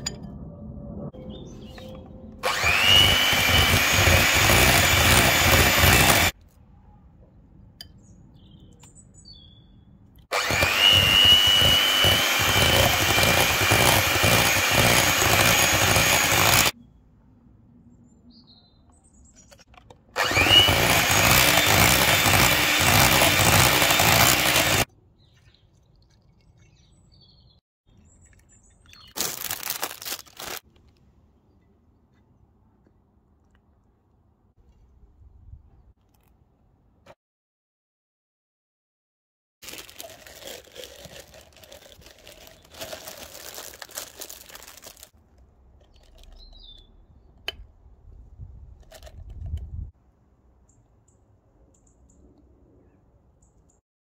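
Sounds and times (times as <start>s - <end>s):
electric hand mixer whining: 2.4s - 6.3s, 10.3s - 16.8s, 20.2s - 24.9s.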